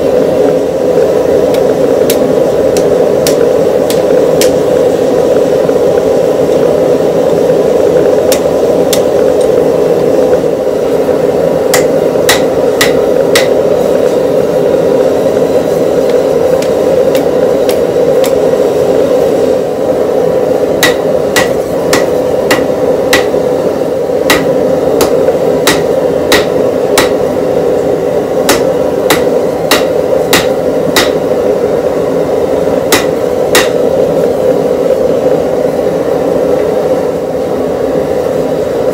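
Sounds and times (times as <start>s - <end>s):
forge rushing noise: 0.0s - 38.9s
hammer striking steel on anvil: 1.5s - 4.8s, 8.3s - 9.6s, 11.7s - 14.2s, 20.8s - 27.4s, 28.4s - 31.4s, 32.9s - 33.9s.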